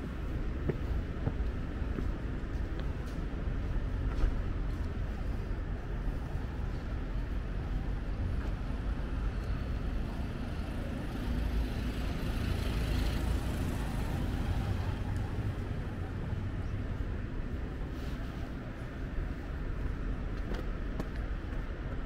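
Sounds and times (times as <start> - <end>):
road traffic: 0.0 - 22.0
vehicle passing by: 10.2 - 16.8.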